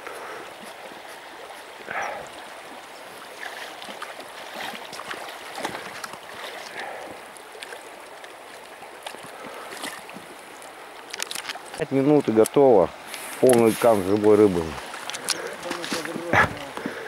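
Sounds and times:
river running over stones: 0:00.0 - 0:17.0
small clicks and splashes: 0:00.0 - 0:17.0.

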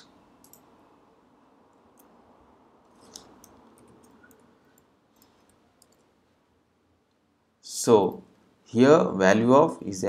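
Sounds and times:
faint computer clicks: 0:00.4 - 0:00.7, 0:02.9 - 0:06.1.

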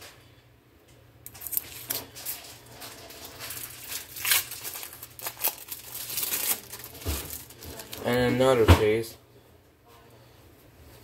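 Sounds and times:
plastic wrapper crinkling: 0:01.3 - 0:08.5.

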